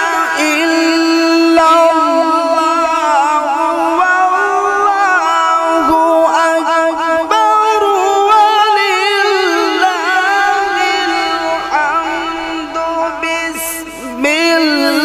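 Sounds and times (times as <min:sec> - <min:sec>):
man reciting melodically through microphone: 0:00.0 - 0:15.0.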